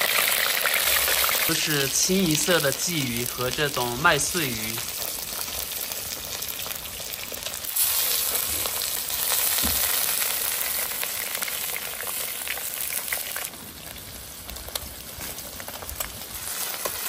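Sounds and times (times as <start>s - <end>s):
fish frying in hot oil: 0.0s - 17.0s.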